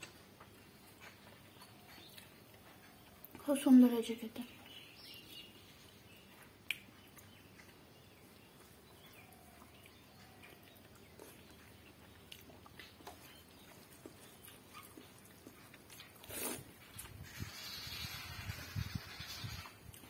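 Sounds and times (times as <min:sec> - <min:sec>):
person chewing food: 0:00.0 - 0:03.4, 0:05.3 - 0:17.4, 0:19.6 - 0:20.0.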